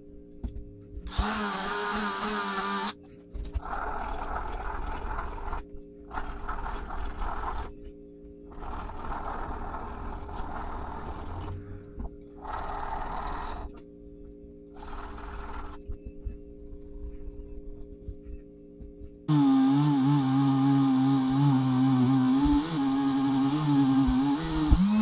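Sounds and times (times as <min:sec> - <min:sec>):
rotary tool brush scrubbing metal: 0:19.3 - 0:25.0.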